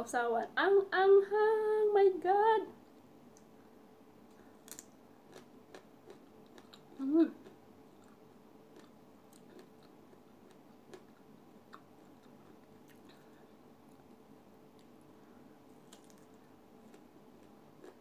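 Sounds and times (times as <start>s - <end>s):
person chewing crunchy fruit: 4.3s - 14.0s, 15.7s - 18.0s.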